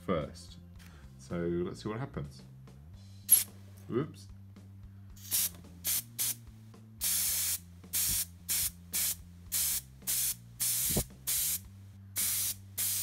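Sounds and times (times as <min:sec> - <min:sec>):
airbrush hissing bursts: 0:03.3 - 0:03.6, 0:05.2 - 0:06.4, 0:07.0 - 0:13.0.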